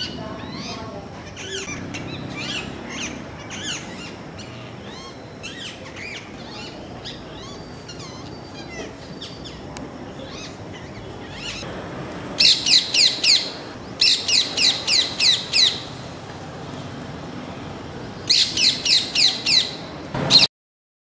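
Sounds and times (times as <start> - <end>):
parakeet screeching: 0.0 - 9.6
low steady background noise: 0.0 - 20.5.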